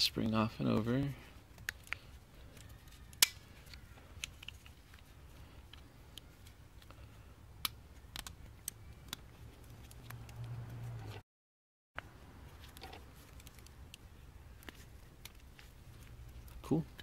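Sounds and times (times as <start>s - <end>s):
plastic parts clicking: 1.6s - 5.1s, 7.6s - 9.2s.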